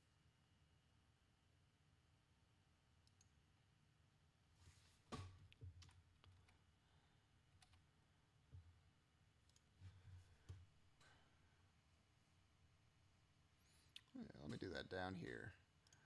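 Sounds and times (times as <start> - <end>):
faint computer mouse clicks: 3.0 - 3.4, 7.6 - 7.8, 9.5 - 9.7.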